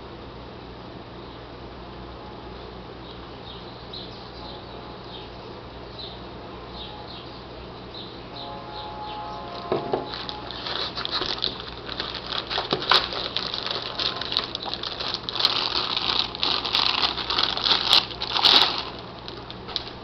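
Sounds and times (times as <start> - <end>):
plastic bag crinkling: 9.5 - 20.0.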